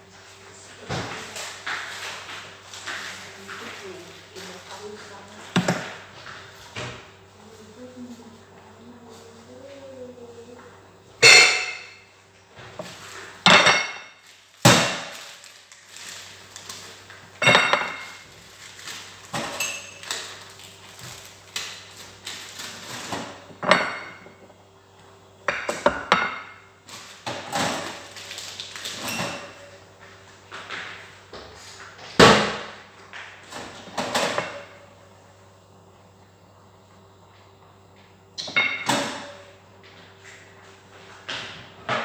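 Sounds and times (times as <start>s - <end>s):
steady low hum: 0.0s - 42.0s
pots and dishes clanking: 11.2s - 12.0s, 22.9s - 24.4s, 28.9s - 29.7s.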